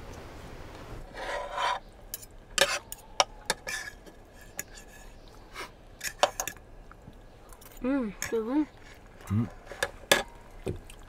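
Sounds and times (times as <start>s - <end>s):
scrape on tabletop: 1.1s - 1.8s.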